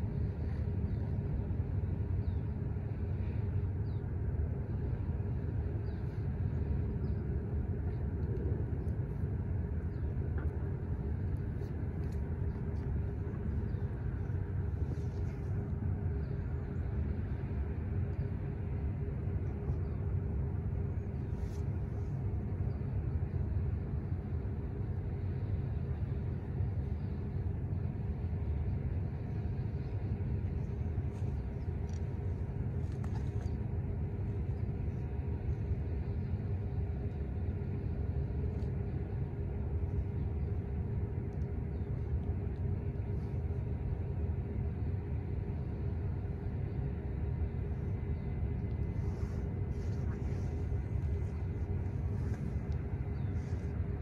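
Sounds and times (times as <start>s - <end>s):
faint constant hum: 0.0s - 54.0s
low rumble: 0.0s - 54.0s.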